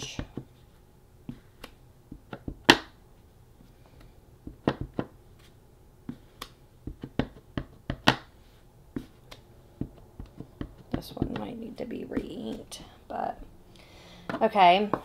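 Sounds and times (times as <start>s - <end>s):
stamp block tapping: 6.9s - 8.3s.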